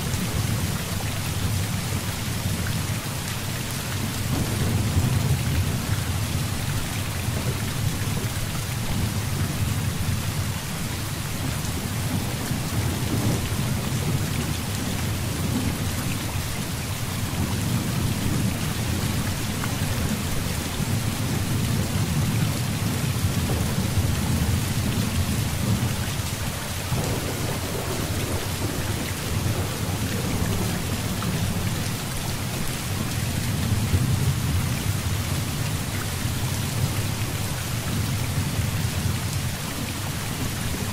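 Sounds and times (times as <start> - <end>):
heavy rain pouring: 0.0 - 40.9
low rolling thunder: 4.2 - 10.5, 11.6 - 16.4, 17.2 - 35.8.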